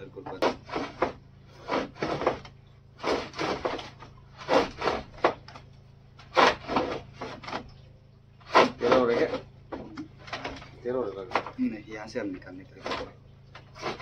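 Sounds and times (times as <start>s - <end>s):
knife sawing through hide: 0.3s - 5.4s, 6.2s - 7.6s, 8.4s - 9.5s, 12.7s - 14.0s.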